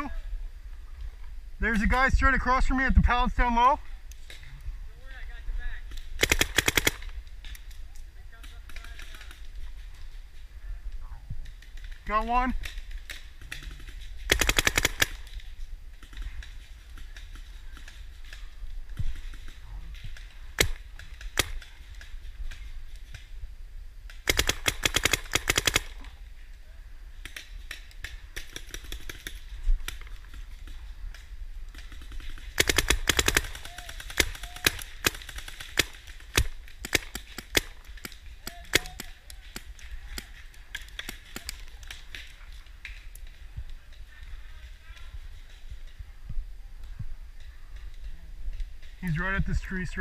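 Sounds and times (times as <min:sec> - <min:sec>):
paintball markers firing: 0:05.8 - 0:10.2, 0:12.6 - 0:23.3, 0:24.1 - 0:26.2, 0:27.2 - 0:46.0.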